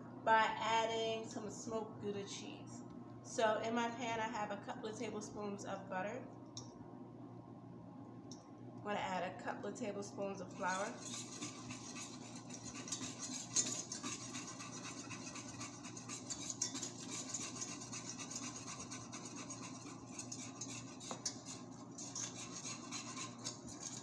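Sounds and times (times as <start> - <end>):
low background hum: 0.0 - 24.0
utensil scraping a pan: 10.4 - 24.0.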